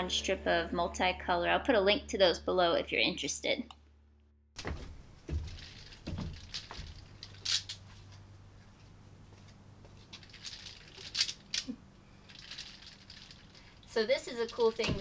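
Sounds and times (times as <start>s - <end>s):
mesh door strips rustling and clacking: 4.6s - 8.2s, 10.0s - 15.0s
footsteps tapping and thudding: 4.6s - 10.3s
faint steady low hum: 4.6s - 15.0s.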